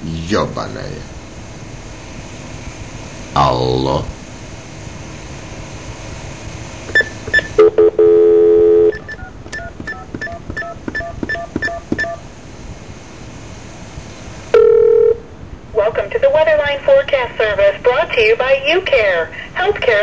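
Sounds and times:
short beeps: 6.9 - 12.2
touch-tone digits dialled: 6.9 - 12.2
telephone line hiss: 6.9 - 12.4, 14.5 - 15.3
dial tone: 7.6 - 9.3, 14.5 - 15.2.

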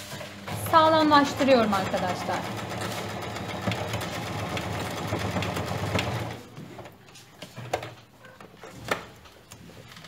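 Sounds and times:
electric sewing machine running: 0.4 - 6.4.

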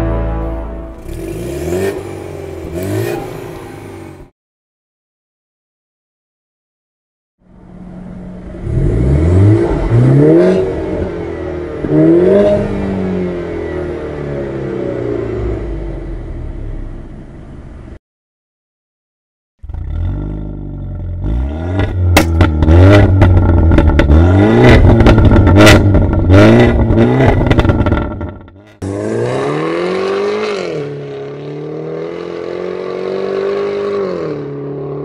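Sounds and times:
car engine revving: 0.9 - 4.3, 7.7 - 16.6, 19.7 - 35.0
car accelerating away: 1.0 - 4.2, 8.4 - 16.0, 28.8 - 35.0
exhaust pops: 21.8 - 28.8.

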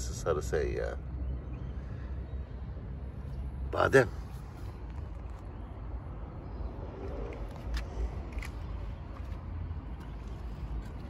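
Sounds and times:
street traffic rumble: 0.0 - 11.0.

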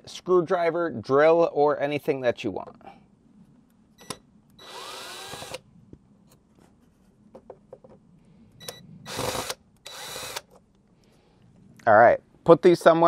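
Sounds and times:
cordless drill whirring: 4.6 - 5.6, 9.1 - 10.5.

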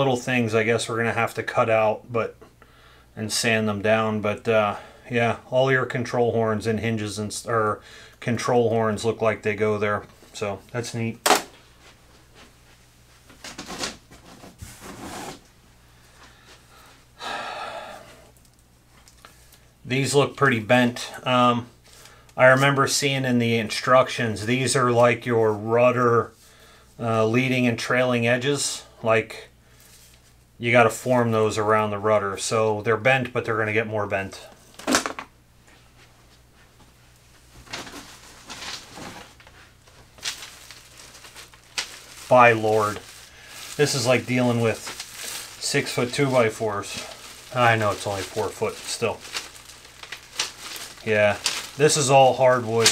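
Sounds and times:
wooden parts rustling in cardboard box: 37.6 - 52.9.

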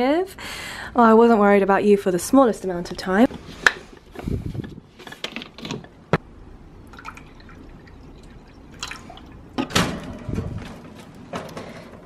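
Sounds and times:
water trickling into dish: 6.8 - 9.6.

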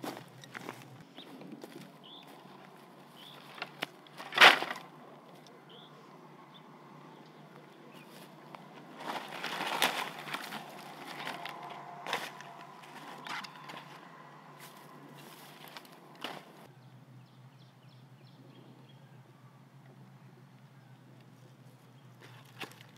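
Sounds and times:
straw and twigs rustling: 0.0 - 5.6, 7.9 - 16.7, 21.6 - 22.9
crackles: 8.2 - 16.7.

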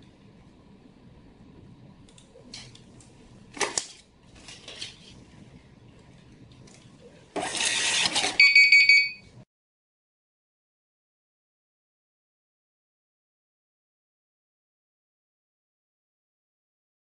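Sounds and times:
receipt printer running: 7.3 - 8.9
high alarm beeps: 8.4 - 9.3.

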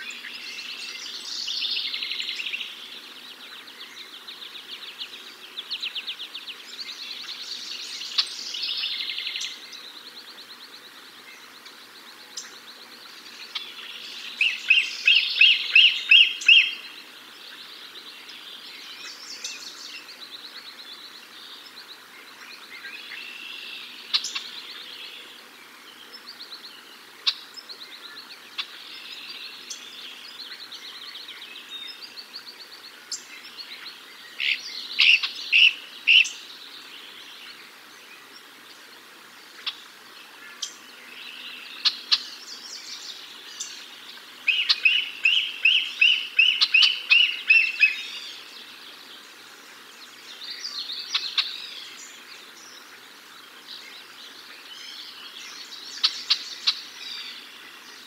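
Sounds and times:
small birds chirping and trilling: 0.0 - 58.0.

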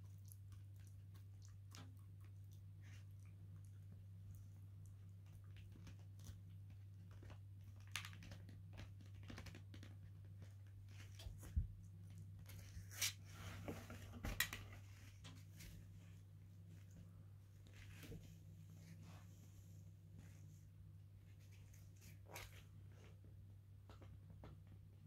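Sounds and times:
puppy gnawing a bone: 0.0 - 10.7.

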